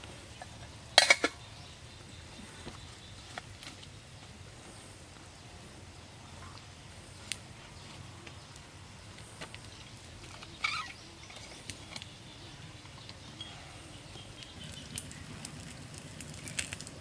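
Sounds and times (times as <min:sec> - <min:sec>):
wood fire crackling: 0:07.0 - 0:10.6, 0:14.0 - 0:17.0.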